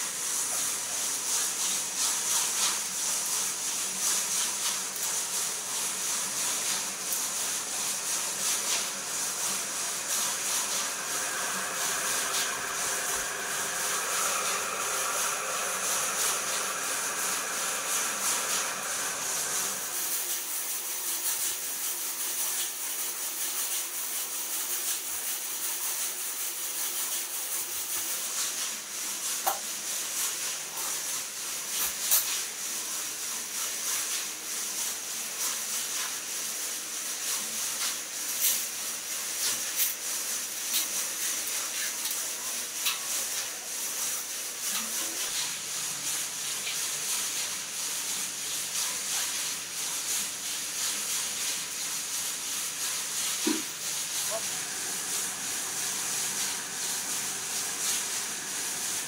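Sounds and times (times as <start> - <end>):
spin dryer whining: 4.8 - 22.0, 53.5 - 59.0.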